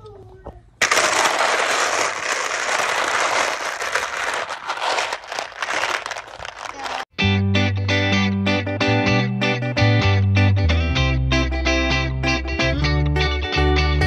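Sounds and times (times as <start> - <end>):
plastic beads clattering: 0.8 - 7.1
guitar music: 7.2 - 14.0.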